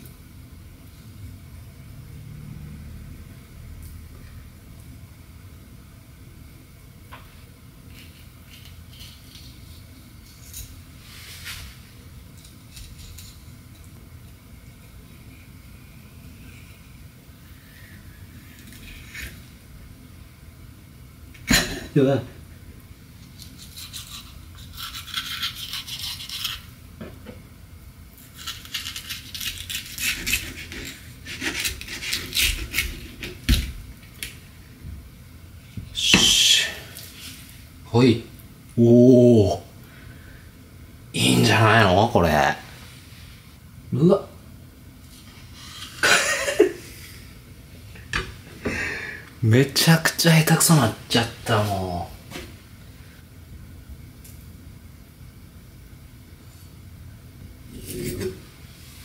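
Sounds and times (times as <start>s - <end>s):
steady low hum: 0.0s - 59.0s
knife scraping fish: 7.9s - 10.8s, 23.2s - 26.7s, 28.2s - 33.6s.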